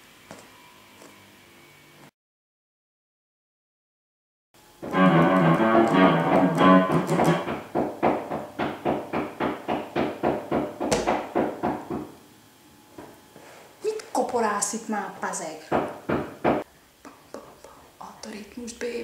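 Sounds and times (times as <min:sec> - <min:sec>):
electric guitar playing: 0:04.8 - 0:07.5.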